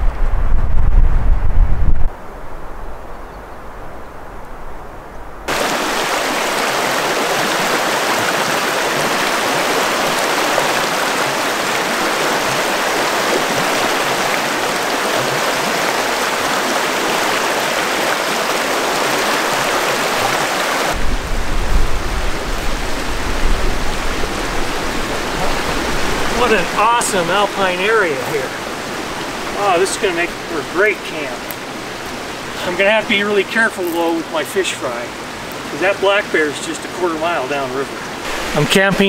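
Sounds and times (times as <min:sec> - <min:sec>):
low rumble: 0:00.0 - 0:05.5, 0:21.0 - 0:26.4
river water rushing: 0:05.5 - 0:39.0.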